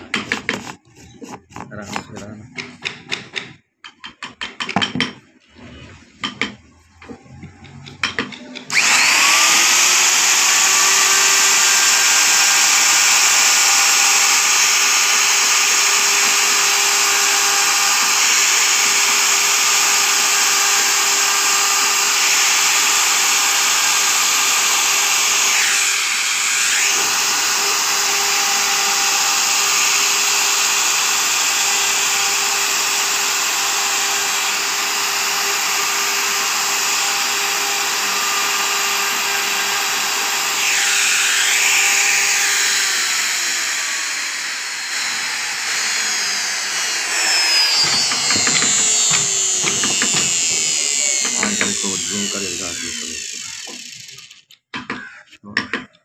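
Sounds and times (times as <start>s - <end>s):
router motor whining: 0.0s - 2.4s, 7.0s - 54.6s
clicks and knocks: 47.7s - 51.7s, 54.5s - 56.0s.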